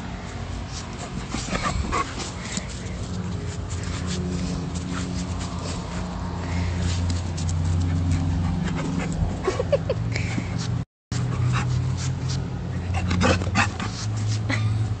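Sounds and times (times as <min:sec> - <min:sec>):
dog panting: 0:00.6 - 0:09.6.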